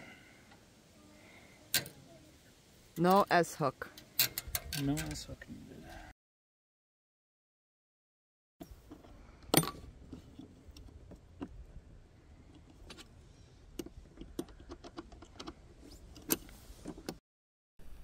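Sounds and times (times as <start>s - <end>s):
small metal clicks and rattles: 1.7s - 2.0s, 3.0s - 5.4s, 12.5s - 17.2s.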